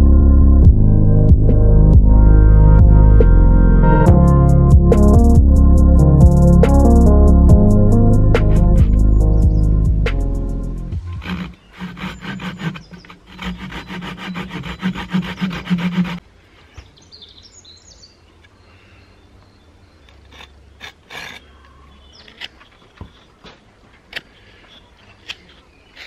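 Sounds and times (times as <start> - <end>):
hand saw cutting a stick: 10.9 - 16.2, 20.2 - 22.7.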